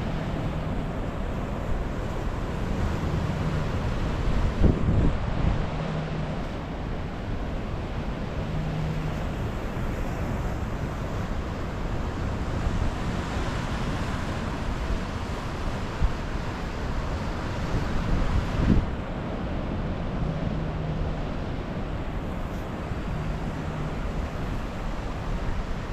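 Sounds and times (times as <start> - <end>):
wind buffeting microphone: 0.2 - 6.3, 12.4 - 19.3.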